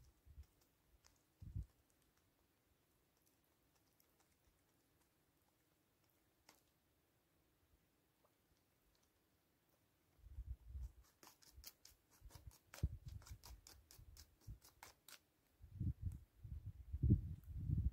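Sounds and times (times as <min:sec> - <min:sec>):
beak clicks pecking seeds: 0:00.0 - 0:02.4, 0:03.1 - 0:06.8.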